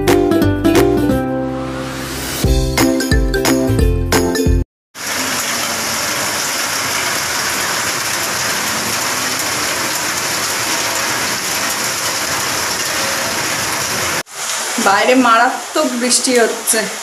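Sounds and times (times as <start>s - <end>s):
heavy rain: 5.0s - 17.0s.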